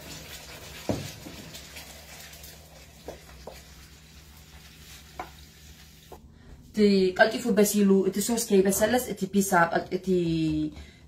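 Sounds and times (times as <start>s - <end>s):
low steady hum: 1.6s - 11.0s.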